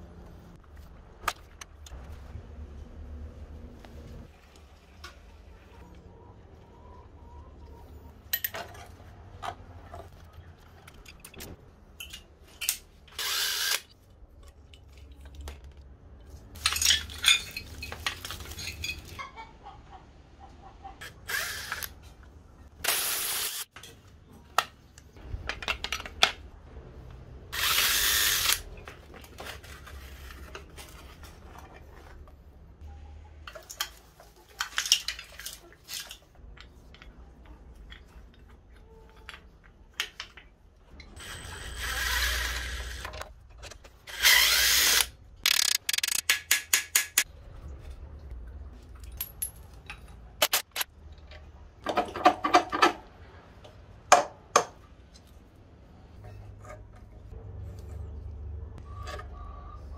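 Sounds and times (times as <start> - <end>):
tools clicking and knocking: 44.9 - 47.3.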